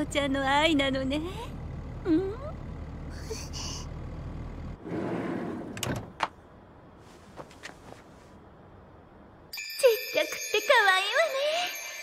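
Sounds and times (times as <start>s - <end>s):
car engine idling: 0.0s - 4.8s.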